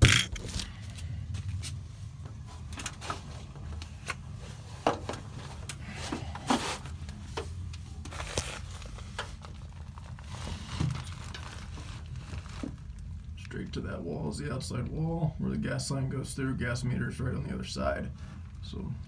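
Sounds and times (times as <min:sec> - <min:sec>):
low steady hum: 0:00.0 - 0:19.0
rustling and crinkling: 0:00.4 - 0:13.4.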